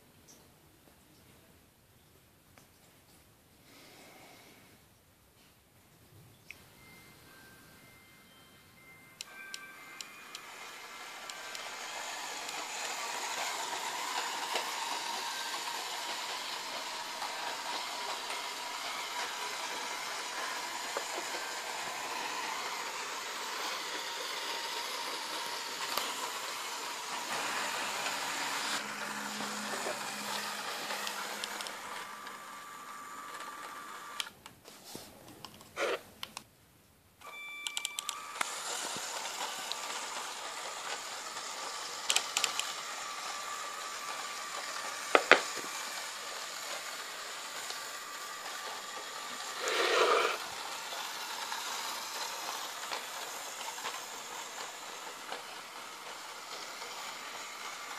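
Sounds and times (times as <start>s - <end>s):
toy motor whirring: 9.2s - 34.3s, 37.3s - 57.9s
wheels clicking on plastic rails: 9.2s - 34.3s, 37.7s - 57.9s.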